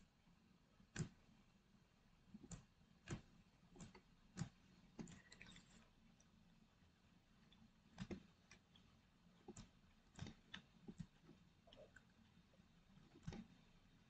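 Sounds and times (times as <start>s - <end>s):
computer mouse and keyboard clicks: 0.9s - 1.2s, 2.4s - 5.8s, 7.5s - 12.3s, 12.9s - 13.8s.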